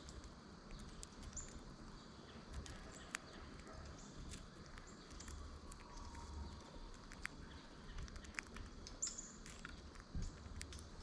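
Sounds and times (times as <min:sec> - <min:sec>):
bird bill picking at seed: 0:00.0 - 0:11.0
bird chirp: 0:00.6 - 0:11.0.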